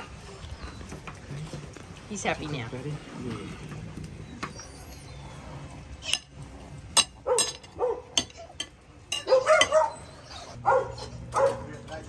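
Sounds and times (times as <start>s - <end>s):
dogs whining and yelping: 4.0s - 6.2s, 7.2s - 11.8s.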